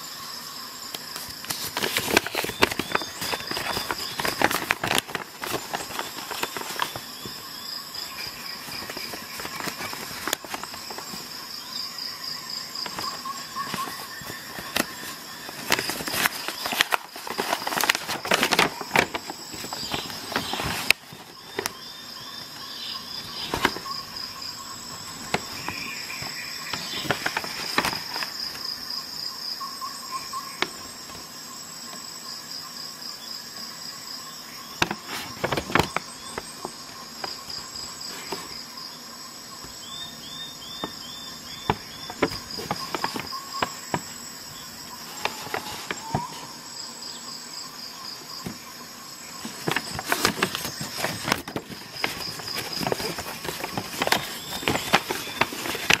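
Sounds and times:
insects chirping: 0.0s - 56.0s
paper leaflet crinkling: 1.0s - 11.5s, 12.7s - 28.7s, 34.8s - 38.6s, 40.7s - 46.5s, 49.4s - 56.0s.

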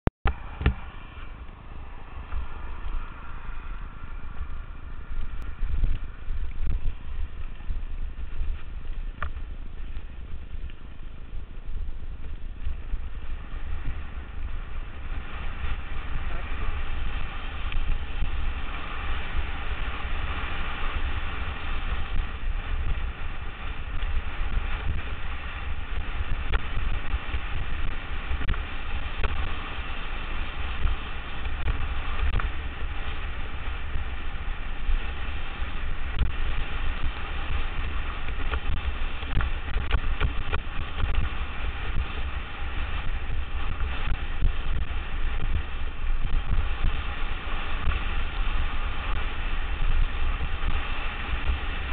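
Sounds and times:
wind buffeting microphone: 0.3s - 51.9s.

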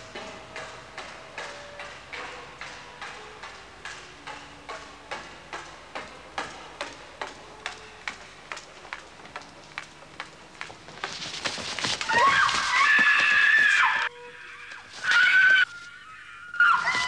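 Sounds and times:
hard-soled footsteps walking: 0.0s - 14.1s
woman screaming: 12.1s - 17.0s.

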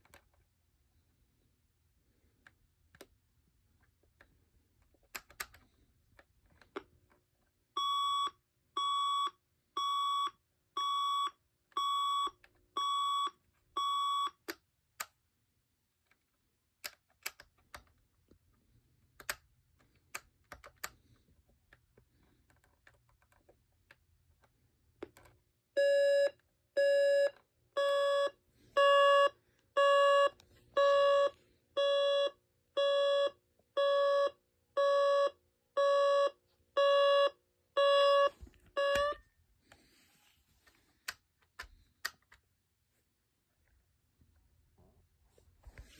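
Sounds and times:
clock buttons clicking: 5.0s - 6.9s, 19.2s - 21.0s
alarm clock beeping: 7.8s - 14.4s, 25.8s - 39.3s.

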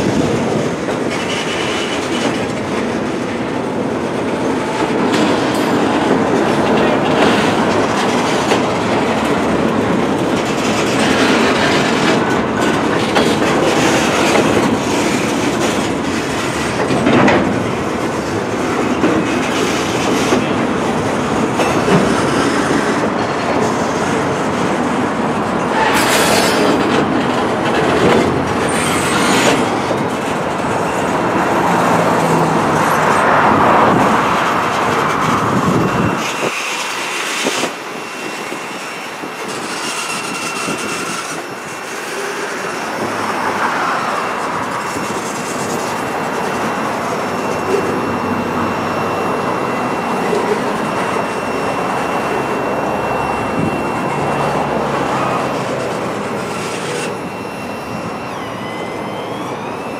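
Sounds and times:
train wheels rumbling clickety-clack: 0.0s - 59.9s
wheel squeal: 25.6s - 30.2s, 32.2s - 59.9s.

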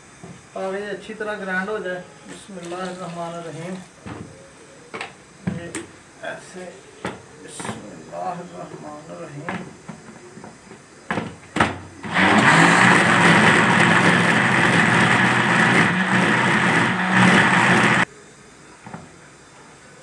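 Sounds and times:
mixer-grinder motor running: 12.0s - 18.1s.

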